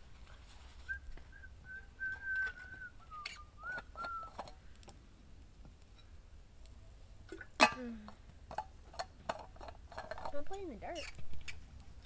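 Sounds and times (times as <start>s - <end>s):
thin high whistle: 0.8s - 4.4s.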